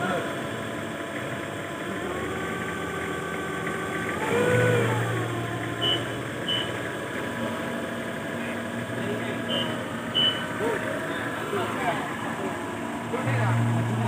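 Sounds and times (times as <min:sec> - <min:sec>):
forklift engine running: 0:00.0 - 0:14.0
short high beeps: 0:05.8 - 0:06.7, 0:09.5 - 0:10.5.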